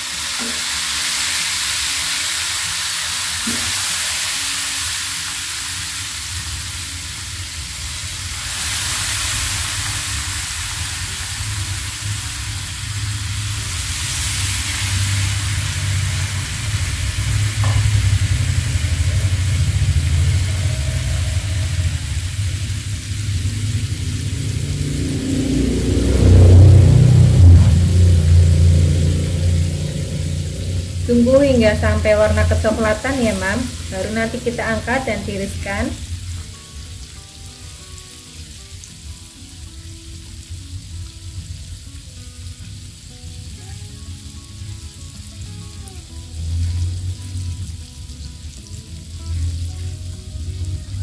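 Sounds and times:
fish deep-frying in oil: 0.0s - 51.0s
low rumble: 10.8s - 36.4s.

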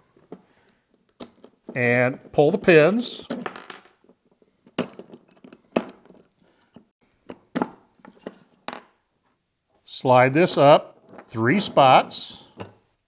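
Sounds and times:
metal pins clicking and clinking: 3.3s - 6.4s.

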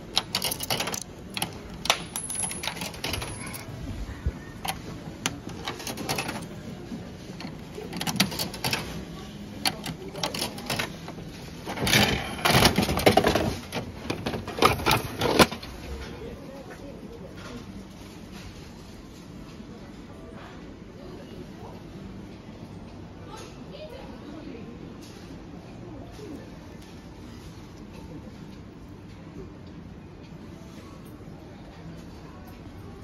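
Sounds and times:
coins dropping into slot: 0.0s - 3.6s.

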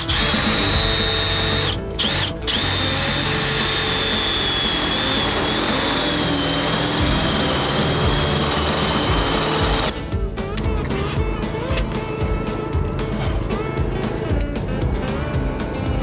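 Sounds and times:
cordless drill whining: 0.0s - 10.1s.

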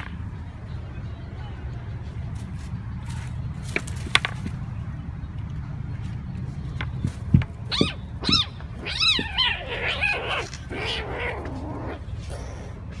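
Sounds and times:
kittens meowing: 7.7s - 12.7s.

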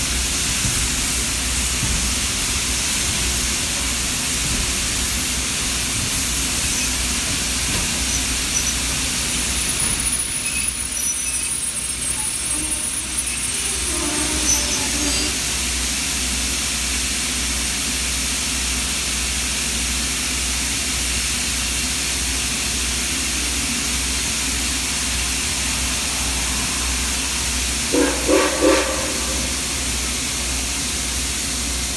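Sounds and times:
steam whistle blasts: 12.5s - 15.5s, 27.9s - 30.0s.

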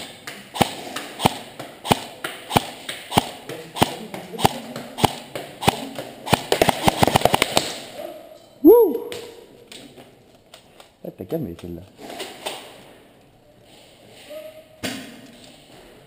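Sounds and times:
airsoft gun shots: 0.0s - 7.9s.

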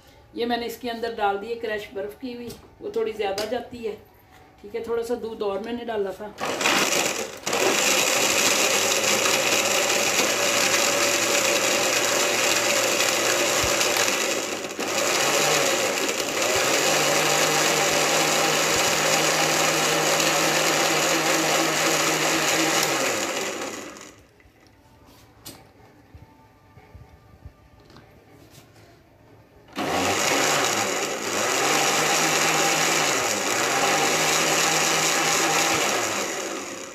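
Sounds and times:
electric blender running: 6.4s - 24.3s, 29.7s - 36.9s.

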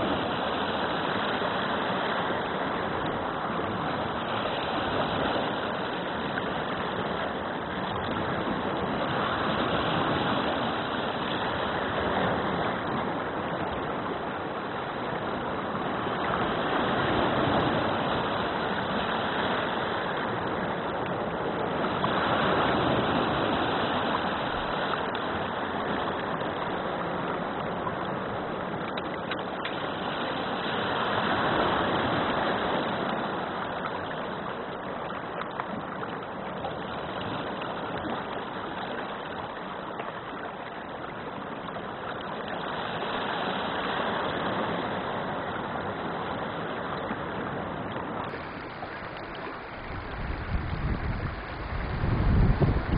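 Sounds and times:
water running over pebbles: 48.3s - 52.9s.

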